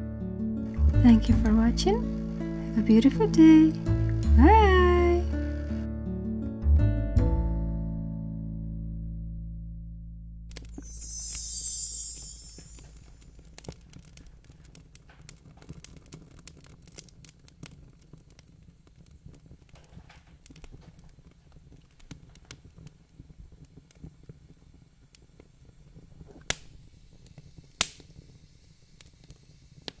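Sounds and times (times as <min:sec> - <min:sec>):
small clicks and crackles: 0:12.2 - 0:30.0.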